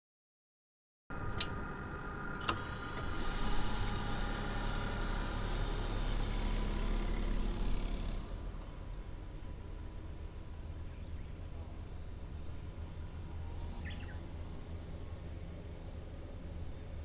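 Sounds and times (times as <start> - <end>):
minivan engine running: 1.1 - 17.0.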